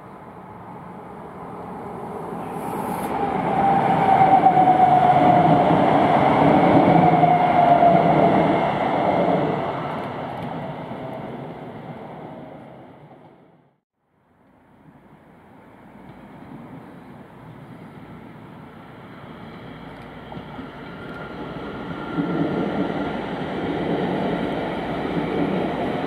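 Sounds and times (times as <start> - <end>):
train whine: 0.0 - 13.7, 14.8 - 26.0
train wheels rumbling: 16.0 - 26.0.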